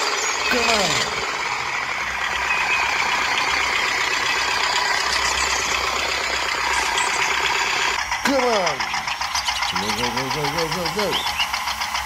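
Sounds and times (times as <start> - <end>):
toy tractor engine running: 0.0 - 12.0.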